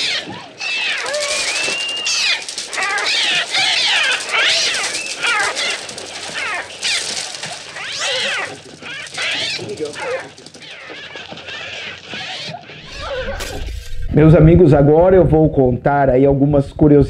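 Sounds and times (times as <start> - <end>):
children screaming: 0.0 - 13.6
electronic gull shrieking cries: 0.0 - 13.6.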